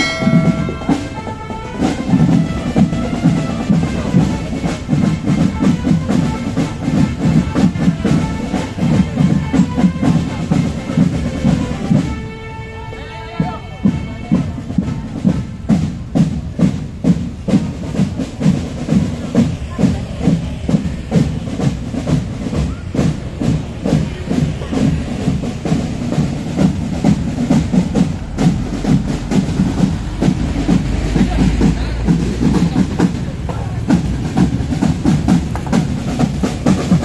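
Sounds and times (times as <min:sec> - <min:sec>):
marching drum band: 0:00.0 - 0:37.0.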